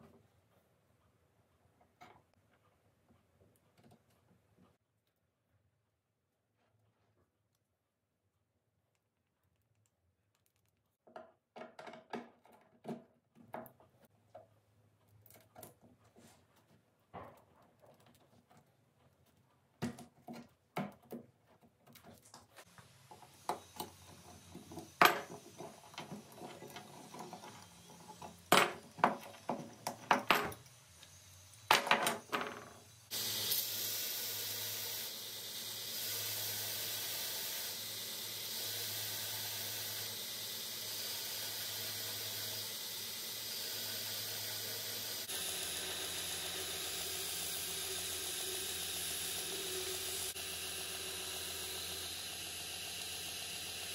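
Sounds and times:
belt grinder hissing: 22.6s - 53.9s.

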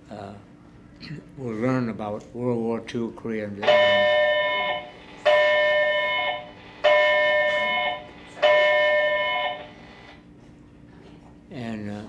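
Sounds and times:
electronic alarm blasts: 3.6s - 10.2s.

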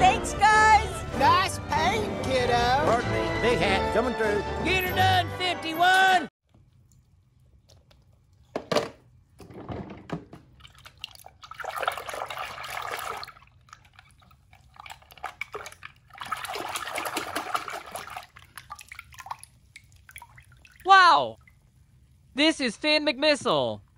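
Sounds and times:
water sloshing in a plastic tub: 6.5s - 22.0s.

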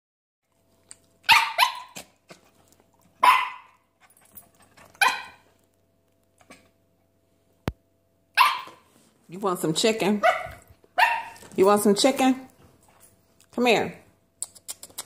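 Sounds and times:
dog barking: 1.2s - 2.0s, 3.2s - 3.8s, 5.0s - 5.4s, 8.4s - 8.8s, 10.2s - 11.4s
dog yipping softly: 1.3s - 2.0s, 5.0s - 5.4s, 8.4s - 8.8s.

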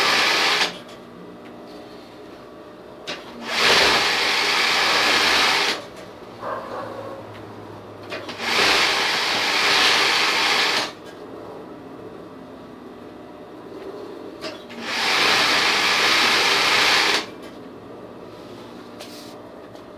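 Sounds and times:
sewing machine running: 0.0s - 0.8s, 3.1s - 6.0s, 8.0s - 11.0s, 14.4s - 17.4s.

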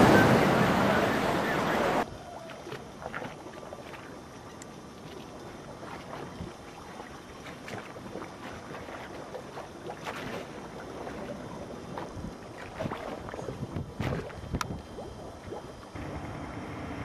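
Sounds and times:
steady outdoor hiss: 0.0s - 17.0s
wind buffeting microphone: 10.6s - 15.8s.

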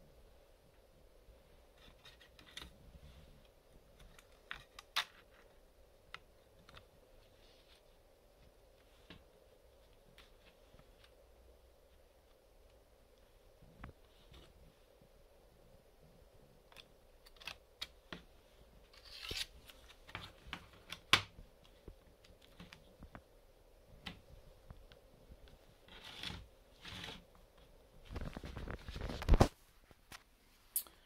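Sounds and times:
rustles and scrapes on wooden table: 25.7s - 27.3s.

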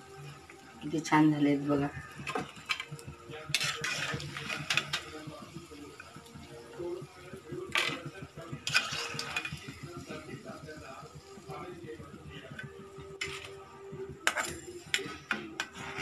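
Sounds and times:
frying oil crackling: 0.0s - 13.6s.

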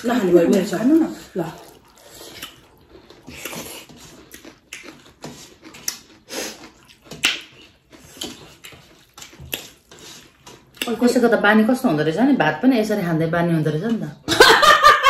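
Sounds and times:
wet chewing and mouth smacks: 0.0s - 11.0s.

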